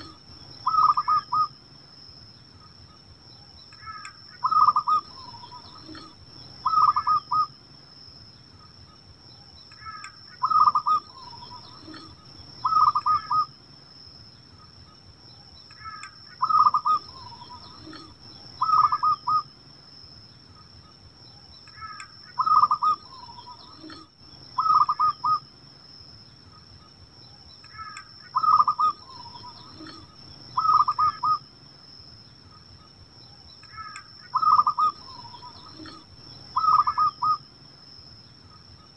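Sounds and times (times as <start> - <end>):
dove cooing: 0.0 - 1.5, 3.8 - 7.5, 9.8 - 13.5, 15.8 - 19.5, 21.8 - 25.4, 27.7 - 31.4, 33.7 - 37.4.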